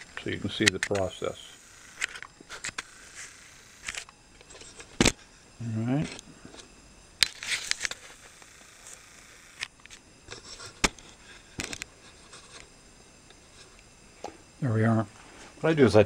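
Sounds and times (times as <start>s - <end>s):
handling clicks and clatter: 0.6s - 1.1s.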